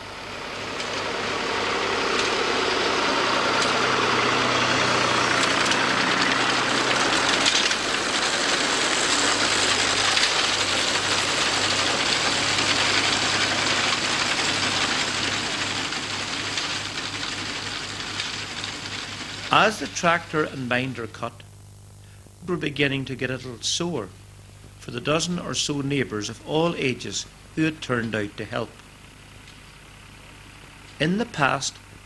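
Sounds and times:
tractor engine running: 0:00.0 - 0:21.6, 0:22.3 - 0:32.0
binder mechanical clatter: 0:00.4 - 0:21.1.

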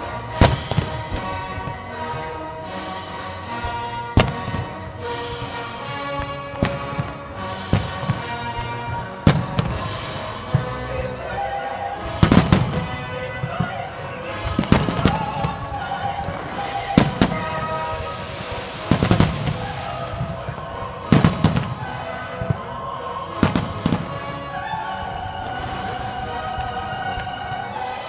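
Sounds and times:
fireworks bursting with loud bangs: 0:00.0 - 0:28.0
music playing: 0:00.0 - 0:28.0.

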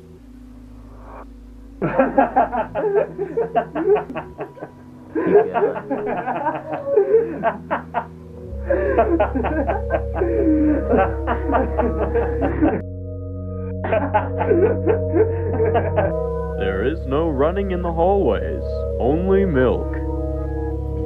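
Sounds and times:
background music with low notes: 0:00.0 - 0:21.0
men laughing: 0:01.8 - 0:12.8, 0:13.8 - 0:16.2.

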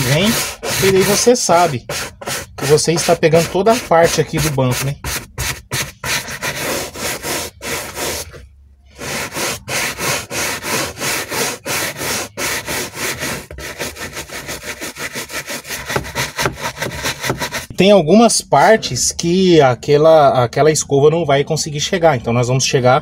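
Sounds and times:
brush scrubbing leather: 0:00.0 - 0:08.4, 0:09.0 - 0:17.7.

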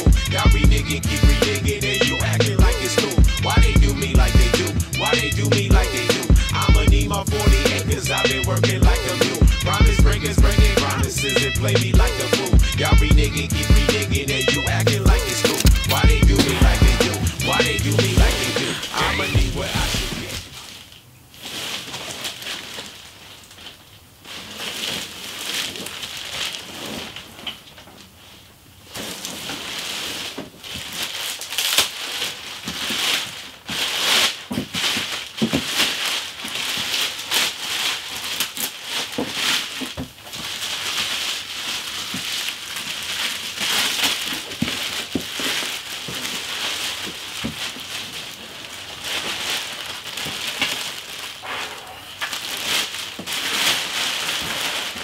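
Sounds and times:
plastic wrap crinkling: 0:00.0 - 0:55.0.

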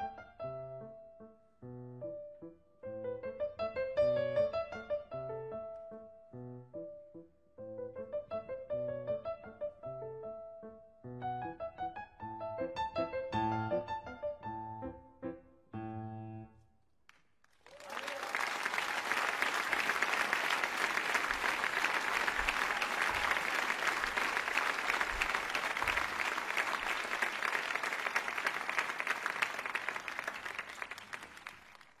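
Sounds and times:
crowd applauding: 0:17.4 - 0:32.0.

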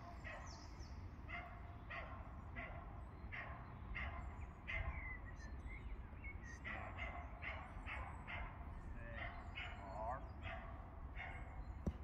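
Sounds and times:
dog barking: 0:01.3 - 0:05.0, 0:06.7 - 0:11.5.

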